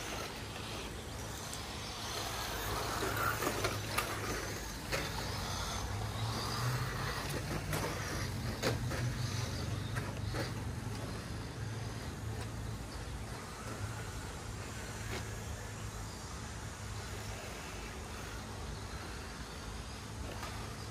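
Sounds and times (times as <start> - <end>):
tyres scrabbling on dirt: 0.0 - 15.9
electric motors whining: 0.0 - 20.9
steady low hum: 0.0 - 20.9.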